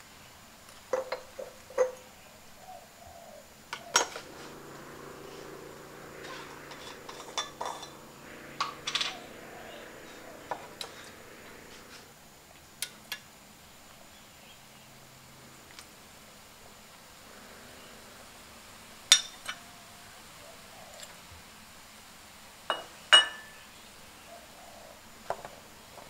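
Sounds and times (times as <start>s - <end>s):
faint low hum: 1.0s - 21.5s.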